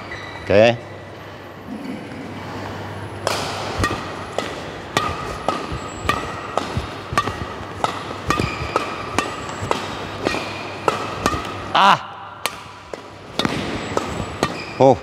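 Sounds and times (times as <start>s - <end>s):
rackets hitting shuttlecock: 3.1s - 15.0s.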